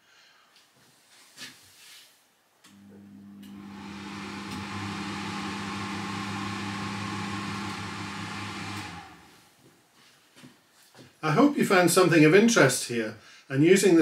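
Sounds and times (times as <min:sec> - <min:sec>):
low electric hum: 0:02.7 - 0:09.4
fans rushing air: 0:03.4 - 0:09.4.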